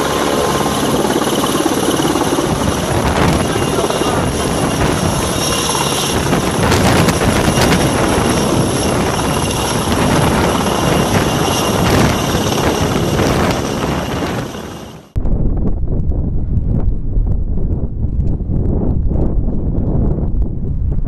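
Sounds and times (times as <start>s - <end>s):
helicopter rotor noise: 0.0s - 15.2s
turbine whine: 0.0s - 21.0s
wind noise: 0.0s - 21.0s.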